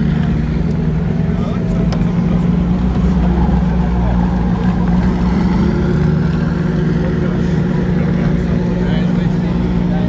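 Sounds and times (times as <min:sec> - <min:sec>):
car engine droning at low revs: 0:00.0 - 0:10.0.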